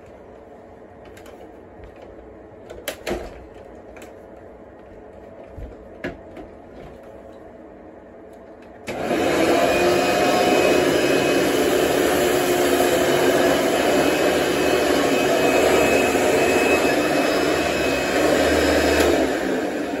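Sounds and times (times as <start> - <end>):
vacuum cleaner running: 8.6 - 20.0.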